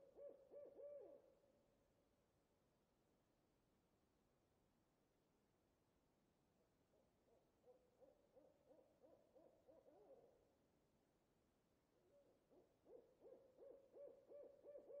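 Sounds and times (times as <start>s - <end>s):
faint owl hooting: 0.0s - 1.3s, 7.6s - 10.4s, 12.0s - 15.0s.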